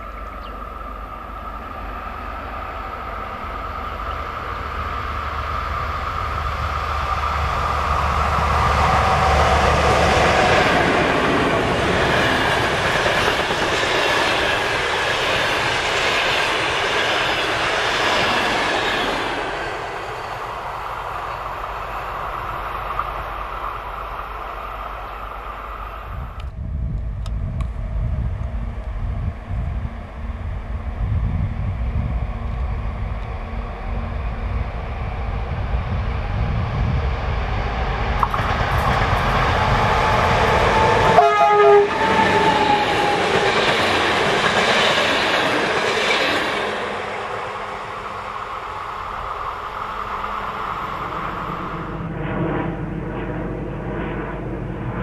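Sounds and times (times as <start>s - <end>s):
passenger train passing: 0.0s - 55.0s
train wheels clattering: 41.9s - 47.1s.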